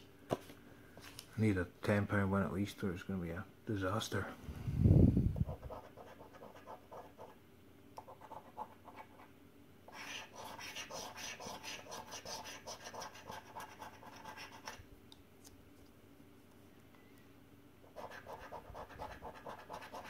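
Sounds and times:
coin scratching a scratchcard: 5.5 - 7.3, 9.9 - 14.8, 17.9 - 20.0.

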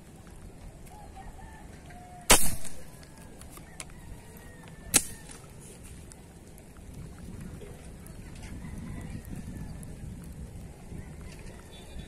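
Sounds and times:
spear airgun shot: 2.3 - 2.9, 4.9 - 5.4
sharp crack: 2.3 - 3.3, 4.9 - 5.8.

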